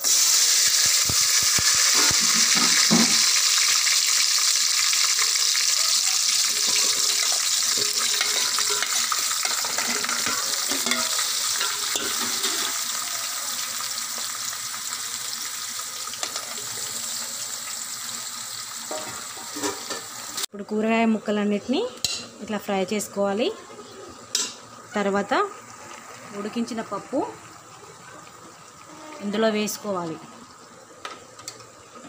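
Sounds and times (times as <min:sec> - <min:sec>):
vegetables sizzling in hot oil: 0:00.0 - 0:20.5, 0:21.8 - 0:32.0.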